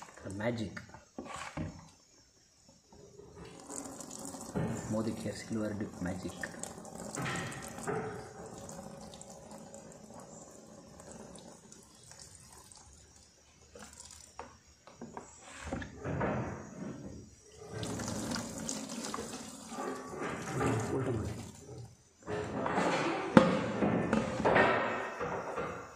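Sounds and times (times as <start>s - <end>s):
water splashing in plastic tub: 3.4s - 14.5s, 17.6s - 21.8s.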